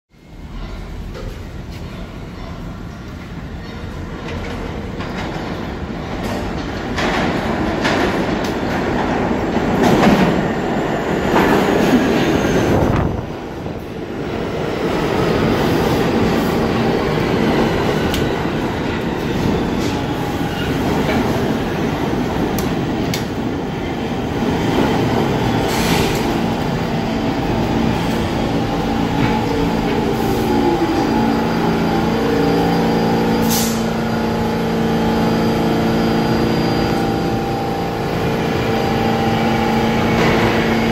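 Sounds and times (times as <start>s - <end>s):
subway train wheels rumbling on rail: 0.1s - 40.9s
train clanks: 0.4s - 13.0s, 24.6s - 34.5s, 39.0s - 40.9s.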